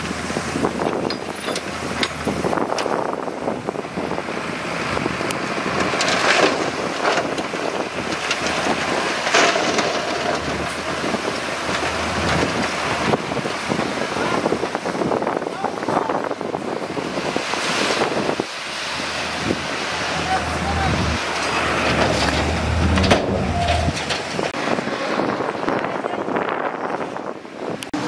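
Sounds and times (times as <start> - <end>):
bulldozer engine under load: 0.0 - 15.3, 16.4 - 25.7
wind buffeting microphone: 0.0 - 28.0
rock crunching and scraping: 5.7 - 13.7.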